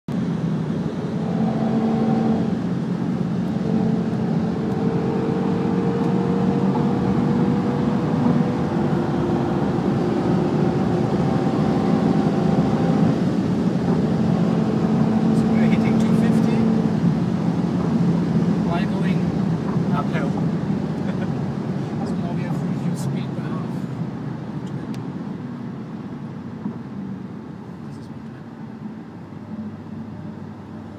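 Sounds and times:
car engine drone: 0.1s - 30.9s.

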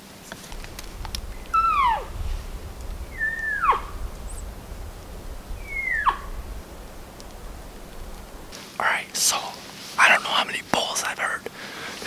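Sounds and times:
elk calls: 0.6s - 8.5s.

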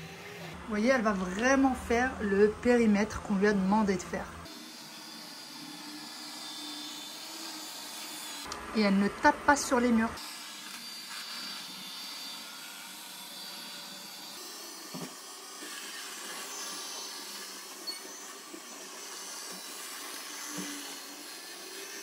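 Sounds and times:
robot vacuum motor whirring: 10.1s - 22.0s.

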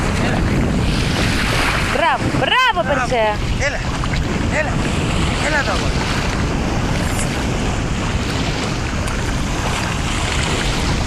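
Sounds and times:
sea water lapping: 0.0s - 11.0s
wind buffeting microphone: 0.0s - 11.0s.

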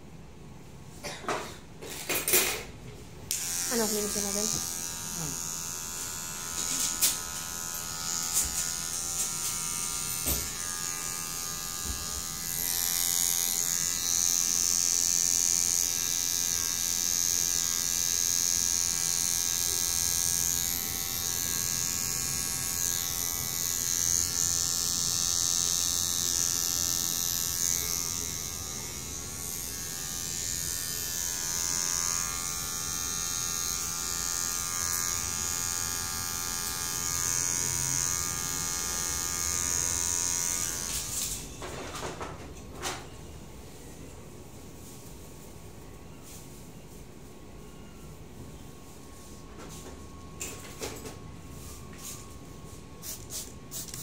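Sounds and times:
electric hair clipper buzzing: 3.3s - 41.5s.

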